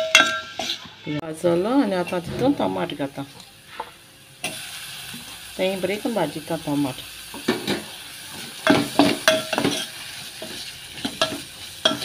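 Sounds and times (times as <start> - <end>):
ladle clinking and scraping pot: 0.0 - 1.0, 7.4 - 12.0
food sizzling in oil: 0.0 - 12.0.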